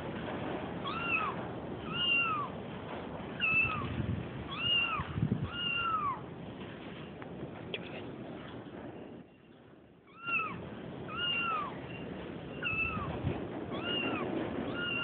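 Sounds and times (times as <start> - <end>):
kitten meows from phone recording: 0.8 - 2.6, 3.4 - 6.3, 10.1 - 15.0.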